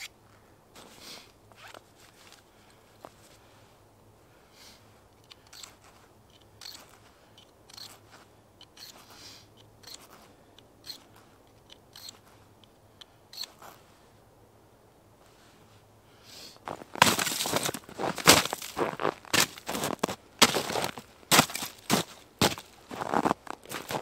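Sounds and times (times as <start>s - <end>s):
clicks and crunchy snips: 5.1s - 13.8s.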